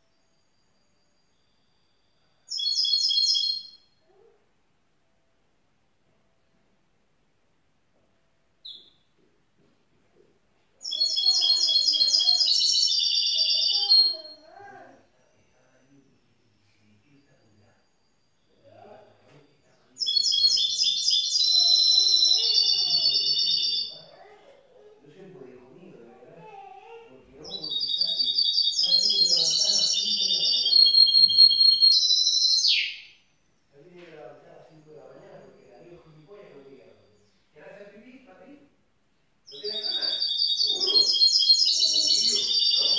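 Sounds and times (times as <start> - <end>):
bird singing trilled notes: 2.5 - 4.3, 8.6 - 9.0, 10.8 - 14.9, 19.7 - 24.3, 26.9 - 33.8, 39.5 - 42.9.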